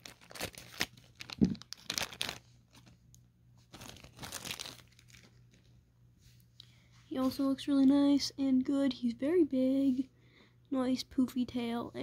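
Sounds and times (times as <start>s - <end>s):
plastic bag crinkling: 0.0s - 5.7s.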